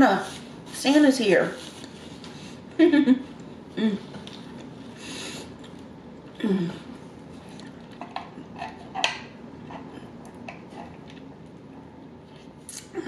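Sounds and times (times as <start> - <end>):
person humming: 2.8 - 4.2, 6.4 - 6.9.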